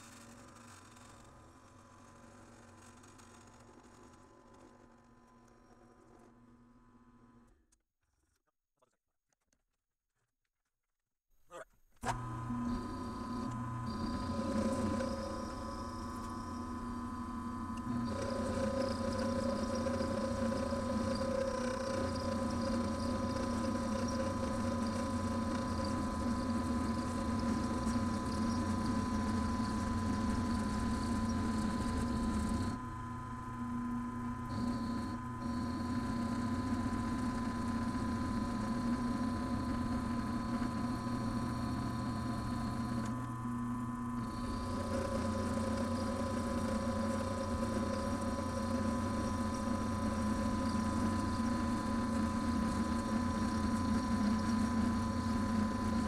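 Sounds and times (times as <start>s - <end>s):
milling machine motor hum: 12.0s - 56.0s.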